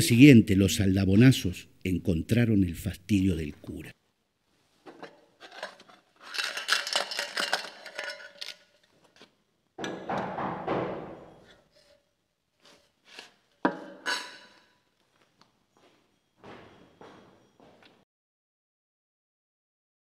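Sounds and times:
knocker on heavy door echoing: 9.8 - 11.4.

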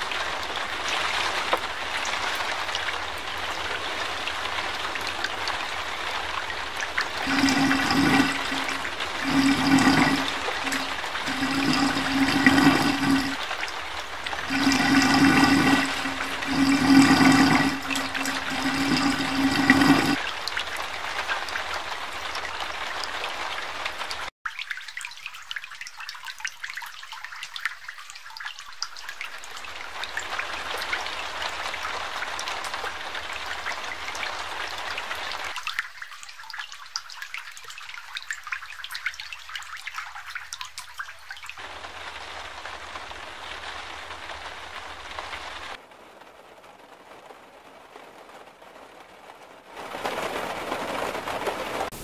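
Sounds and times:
water trickling: 0.0 - 41.6
floodwater gushing from street drain: 0.0 - 45.8.

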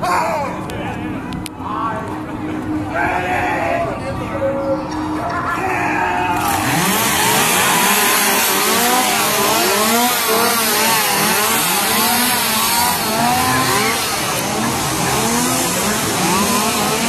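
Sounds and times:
chainsaws revving: 6.3 - 17.0.

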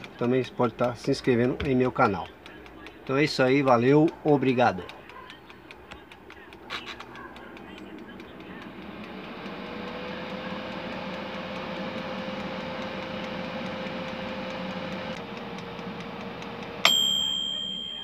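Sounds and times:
air fryer fan humming: 0.0 - 18.0
timer bell ding: 16.8 - 18.0.

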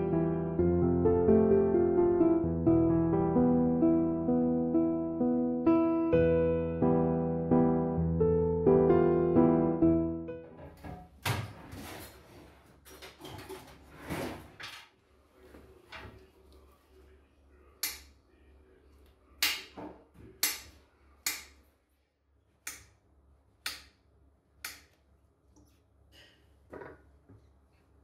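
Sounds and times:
objects scraping and rustling: 11.5 - 17.2.

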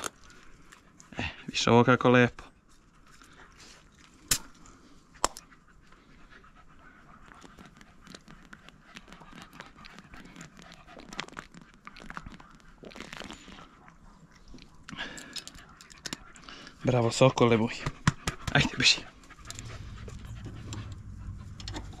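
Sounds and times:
small ticks and rustles: 0.0 - 1.2, 2.4 - 17.8
dog panting: 0.1 - 22.0.

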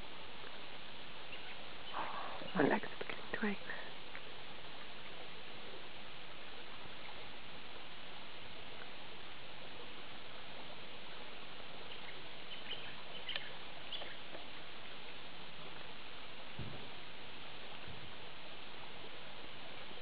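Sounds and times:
steady outdoor hiss: 0.0 - 20.0.

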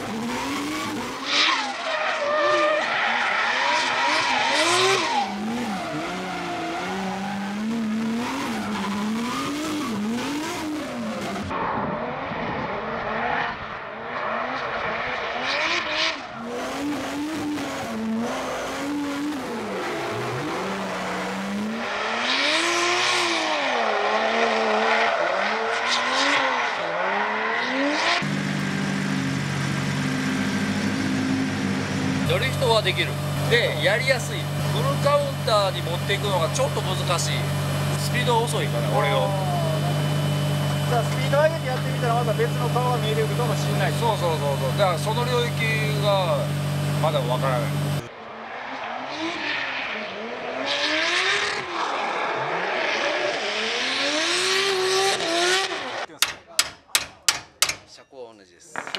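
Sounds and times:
car engine revving: 0.0 - 56.2
tires screeching: 0.0 - 56.2
car engine idling: 28.2 - 48.0.

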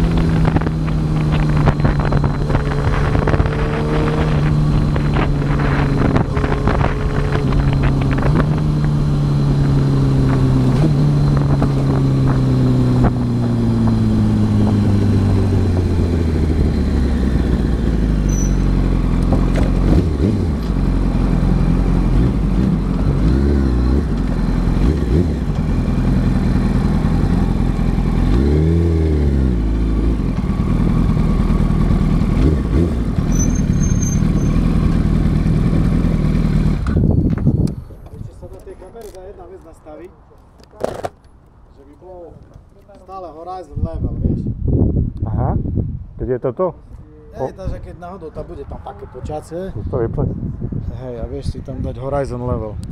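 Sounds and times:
motorcycle throttle blips: 0.0 - 28.5
motorcycle engine rumble: 0.0 - 43.0.

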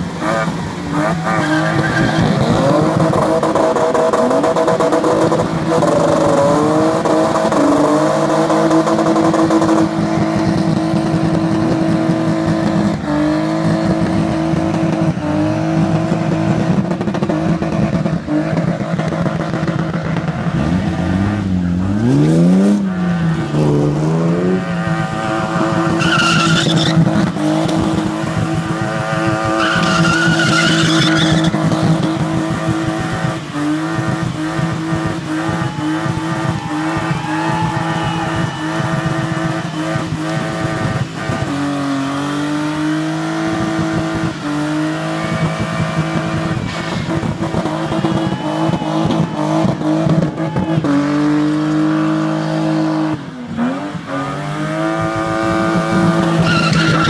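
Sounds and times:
car engine at high revs: 0.0 - 57.0
second car engine: 0.0 - 57.0
tyre squeal: 1.0 - 3.0, 25.6 - 27.1, 29.4 - 31.7, 56.2 - 57.0.

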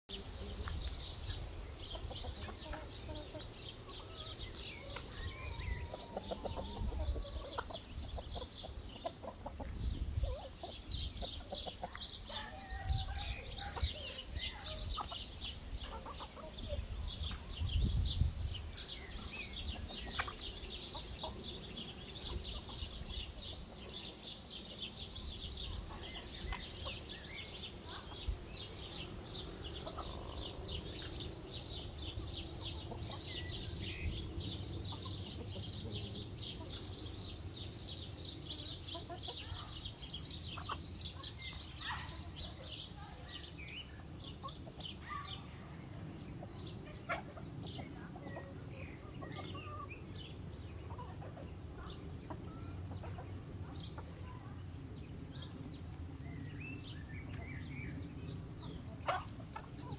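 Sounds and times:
chickens clucking: 0.1 - 59.9
small birds chirping: 0.1 - 59.9
wind rumbling on microphone: 4.4 - 8.7, 9.5 - 11.7, 12.6 - 15.8, 16.5 - 20.6.

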